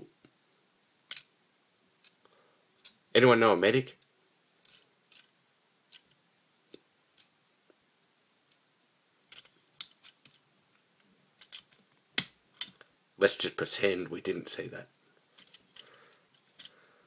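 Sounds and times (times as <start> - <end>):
plastic parts clicking: 11.4 - 12.8, 15.3 - 16.8.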